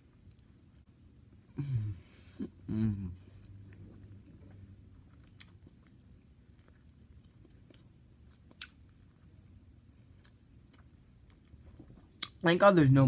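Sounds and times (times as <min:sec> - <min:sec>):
chewing soft food: 0:03.2 - 0:12.4.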